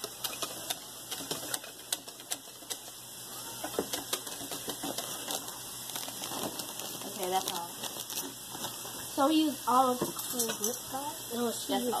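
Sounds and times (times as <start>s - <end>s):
whisk clicking in metal bowl: 0.0s - 3.0s, 3.6s - 5.6s.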